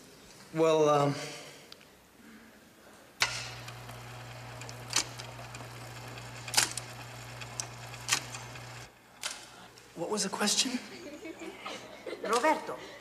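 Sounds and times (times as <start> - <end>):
typewriter motor humming: 3.2 - 9.4.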